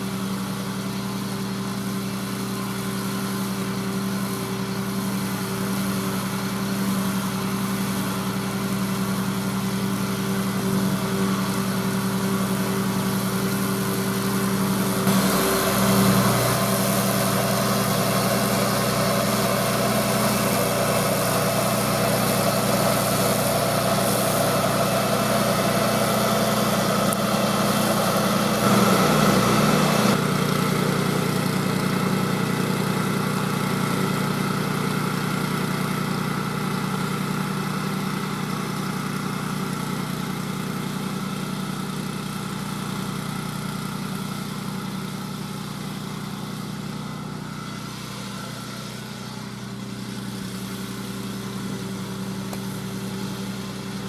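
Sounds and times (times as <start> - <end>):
flail mower cutting grass: 0.0 - 54.0
tractor engine running: 0.0 - 54.0.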